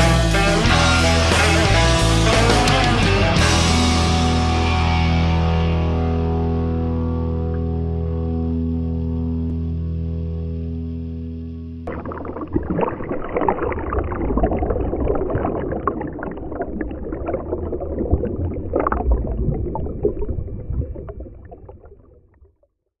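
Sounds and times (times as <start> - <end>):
water sloshing and gurgling: 11.9 - 22.8.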